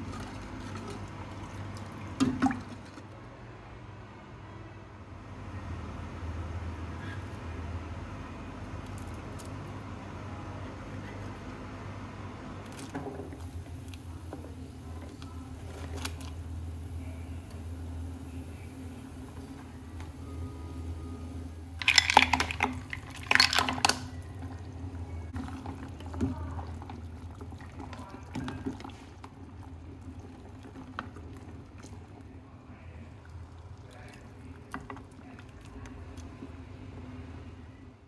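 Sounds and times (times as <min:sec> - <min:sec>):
broth boiling and bubbling: 0:00.0 - 0:03.1, 0:08.5 - 0:38.0
low hum: 0:13.4 - 0:21.8.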